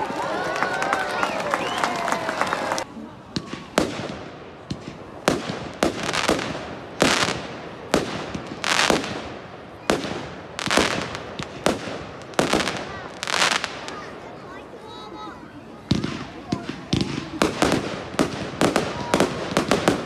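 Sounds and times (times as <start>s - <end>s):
fireworks bangs with echo: 3.2s - 14.5s, 15.8s - 20.0s.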